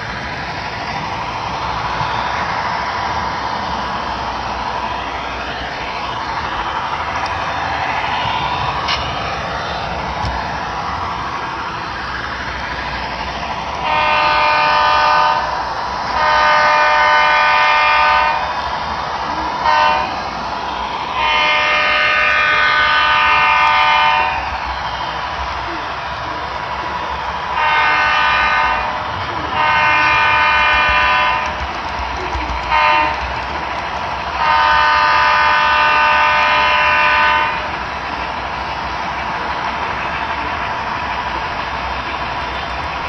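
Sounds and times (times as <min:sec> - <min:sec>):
locomotive running: 0:00.0 - 0:43.0
locomotive horn blasts: 0:13.8 - 0:15.6, 0:16.2 - 0:18.5, 0:19.6 - 0:20.2, 0:21.2 - 0:24.5, 0:27.6 - 0:31.9, 0:32.5 - 0:33.5, 0:34.4 - 0:37.8.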